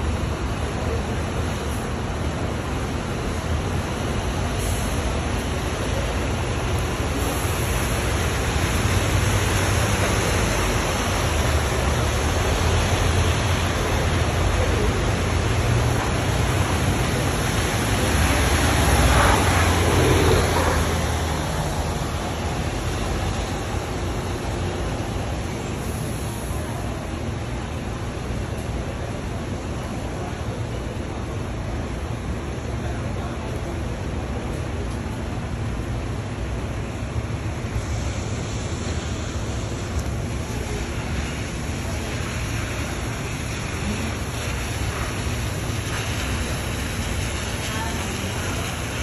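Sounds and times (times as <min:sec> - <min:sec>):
bus engine rumble: 0:00.0 - 0:49.0
steady loud hiss: 0:00.0 - 0:49.0
tyre hiss on wet pavement: 0:00.3 - 0:49.0.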